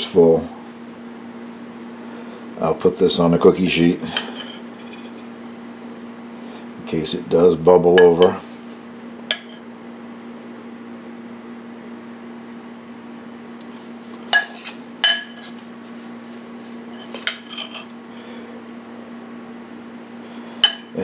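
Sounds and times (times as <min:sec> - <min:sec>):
steady low hum: 0:00.0 - 0:21.0
metal spoon clinking on bowl: 0:09.3 - 0:09.6, 0:14.4 - 0:15.6, 0:20.6 - 0:21.0.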